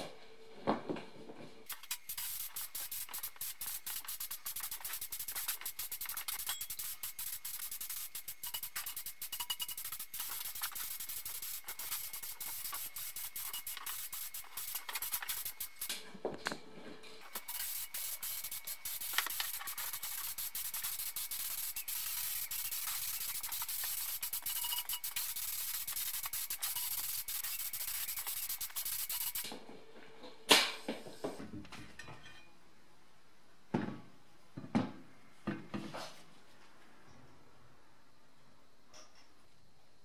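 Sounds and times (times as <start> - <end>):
spray gun hissing: 1.7 - 16.0, 17.2 - 29.5.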